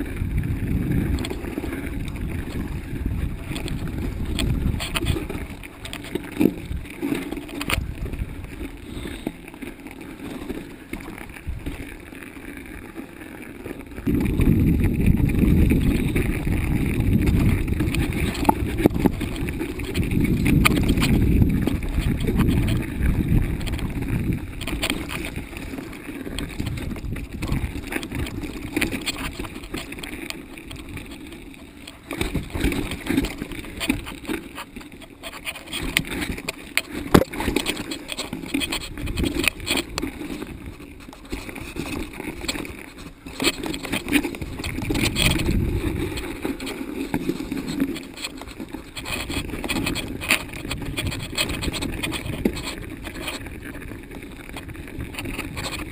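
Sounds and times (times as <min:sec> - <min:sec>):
wind rushing over microphone: 0:00.0 - 0:05.6, 0:14.0 - 0:25.7, 0:26.3 - 0:29.8, 0:43.4 - 0:55.9
bike clicking and rattling: 0:00.0 - 0:55.9
bike tyres rumbling: 0:00.0 - 0:55.9.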